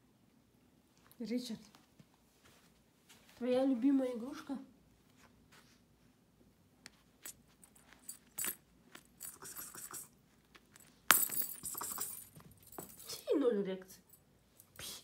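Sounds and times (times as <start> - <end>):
small metal bell jingling: 7.2 - 13.3.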